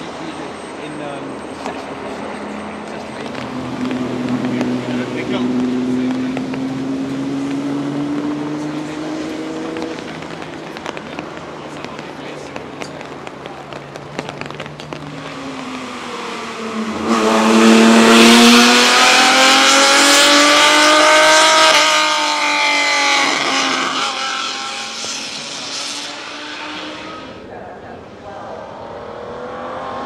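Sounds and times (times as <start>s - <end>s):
race car engine accelerating: 1.2s - 27.5s, 28.2s - 30.0s
sharp cracks: 9.6s - 15.9s.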